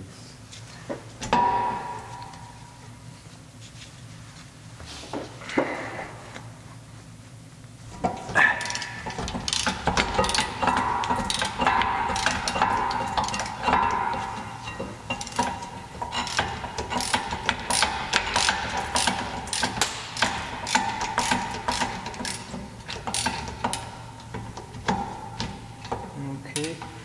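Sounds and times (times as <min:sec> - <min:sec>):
ratchet wrench clicking: 0:08.6 - 0:13.8, 0:16.1 - 0:24.0.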